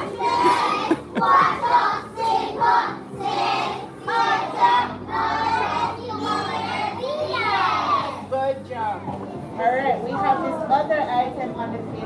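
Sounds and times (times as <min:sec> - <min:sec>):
children singing in unison: 0:00.0 - 0:08.2.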